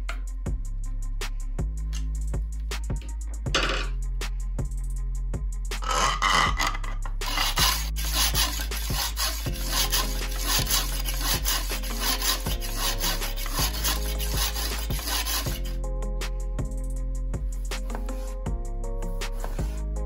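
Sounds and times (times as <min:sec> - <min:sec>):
block rasping on knife edge: 0:05.8 - 0:15.8, 0:17.7 - 0:18.4, 0:19.2 - 0:19.8.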